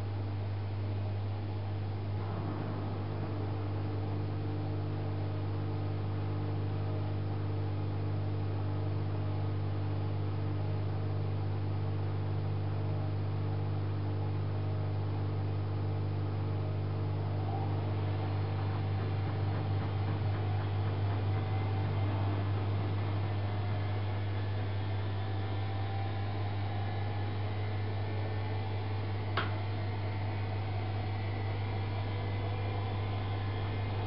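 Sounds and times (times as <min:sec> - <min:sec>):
washing machine drum turning: 0:18.0 - 0:24.4.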